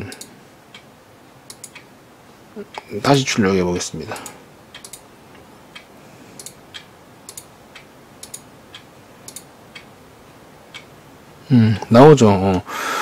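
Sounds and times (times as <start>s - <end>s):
computer mouse clicking: 0.0s - 0.9s, 1.5s - 1.9s, 4.2s - 5.0s, 5.8s - 9.9s.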